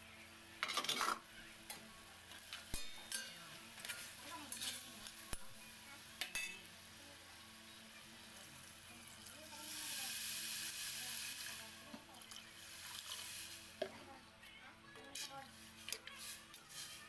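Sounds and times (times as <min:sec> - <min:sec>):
meat sizzling while stirred: 0:00.5 - 0:14.1, 0:15.0 - 0:17.0
spoon clinking against pot: 0:02.7 - 0:05.4, 0:06.2 - 0:06.7
water poured into hot pot hissing: 0:08.2 - 0:13.9.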